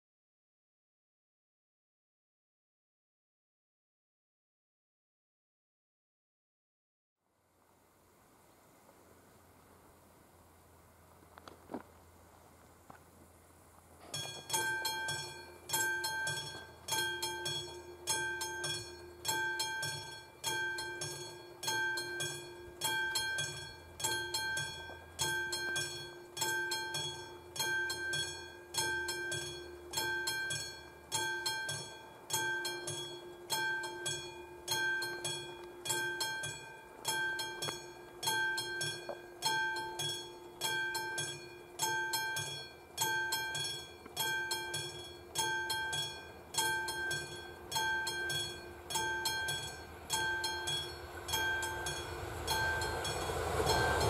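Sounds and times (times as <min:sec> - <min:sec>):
level crossing bell ringing: 0:14.0 - 0:54.0.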